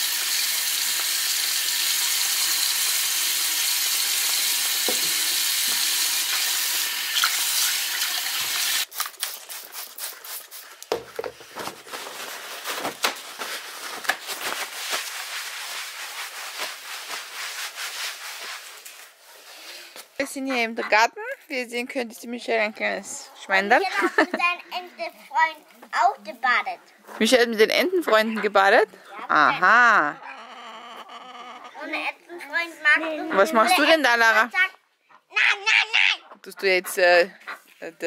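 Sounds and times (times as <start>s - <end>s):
tap running into sink: 4.8s - 6.4s
cloth rubbing on floor: 11.4s - 19.6s.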